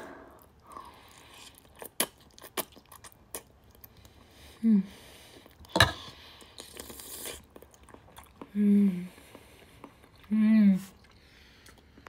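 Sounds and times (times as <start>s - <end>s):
person chewing food: 0.0s - 12.0s
wet mouth clicks: 1.6s - 3.9s.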